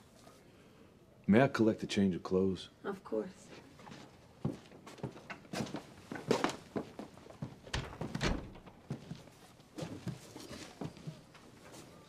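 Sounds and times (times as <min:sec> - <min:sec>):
wooden knocks and thumps: 0:07.7 - 0:09.2.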